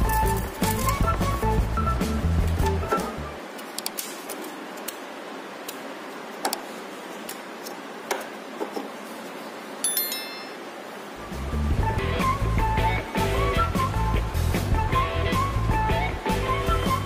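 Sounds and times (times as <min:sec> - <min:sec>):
room hiss: 0:01.4 - 0:17.0
high ringing tone: 0:09.8 - 0:11.0.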